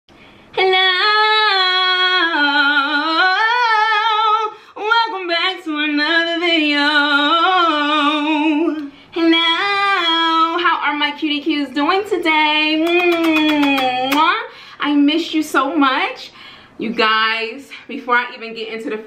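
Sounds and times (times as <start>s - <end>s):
woman singing unaccompanied: 0.5s - 15.4s.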